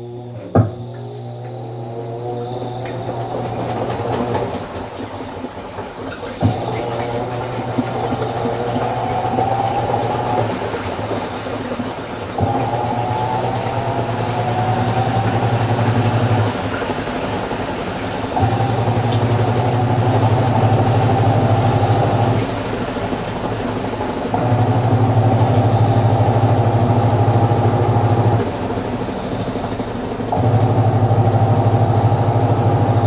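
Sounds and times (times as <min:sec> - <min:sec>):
washing machine motor humming: 0:00.0 - 0:33.0.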